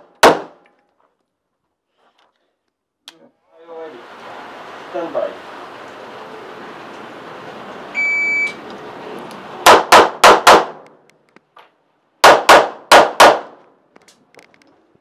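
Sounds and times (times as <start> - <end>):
handgun shots: 0.0 - 0.6, 9.6 - 10.9, 12.2 - 13.6
shot timer beep: 8.0 - 8.6.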